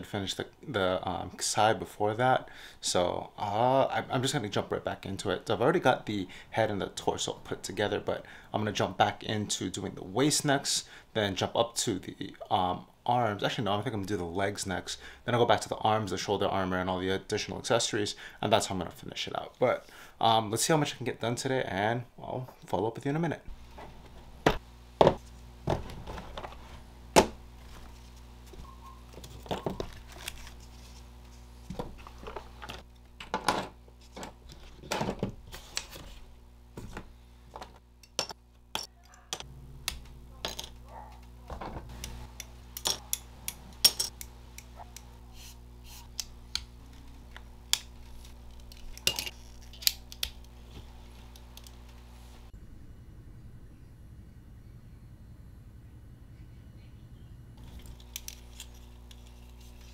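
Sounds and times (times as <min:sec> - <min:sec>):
faint steady hum: 0:00.0 - 0:59.9
plastic parts clicking together: 0:46.1 - 0:50.5.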